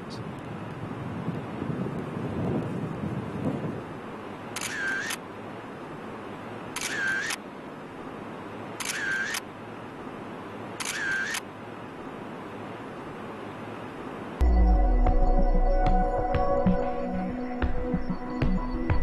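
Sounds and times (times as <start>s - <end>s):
camera shutter clicking: 4.6s - 5.2s, 6.8s - 7.4s, 8.8s - 9.5s, 10.8s - 11.4s.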